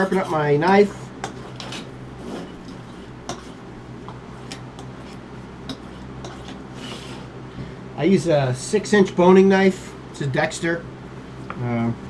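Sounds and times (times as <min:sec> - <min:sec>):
knife blade scraping on sharpener: 0:01.2 - 0:03.6, 0:05.7 - 0:07.2.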